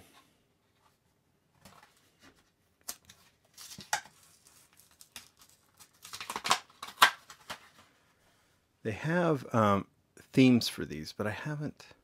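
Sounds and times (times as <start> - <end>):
plastic blister card tearing: 2.9 - 7.7.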